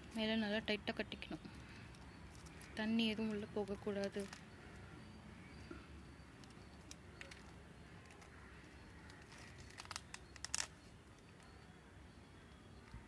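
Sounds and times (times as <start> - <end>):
plastic bag crinkling: 2.0 - 4.6, 9.0 - 11.3.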